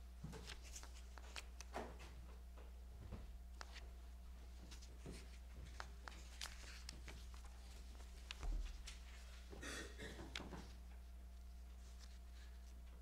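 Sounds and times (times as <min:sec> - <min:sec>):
low electrical hum: 0:00.0 - 0:13.0
pages rustling: 0:00.4 - 0:01.7, 0:04.5 - 0:09.5, 0:11.8 - 0:12.8.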